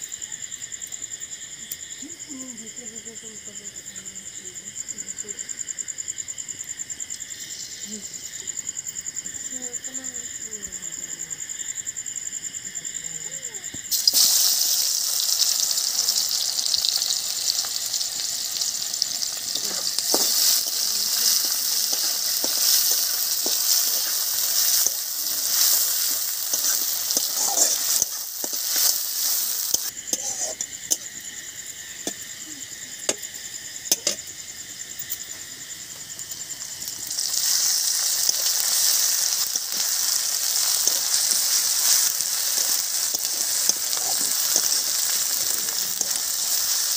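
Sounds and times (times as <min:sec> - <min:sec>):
crickets chirping: 0:00.0 - 0:46.9
onions sizzling in hot oil: 0:05.4 - 0:10.4, 0:11.4 - 0:46.9
spatula scraping a pan: 0:19.3 - 0:30.7, 0:37.3 - 0:46.9.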